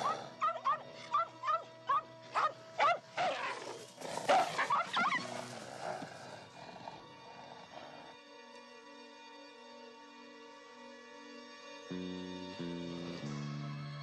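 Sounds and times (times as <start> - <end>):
film music: 0.0 - 14.0
small dog yapping: 4.3 - 5.2.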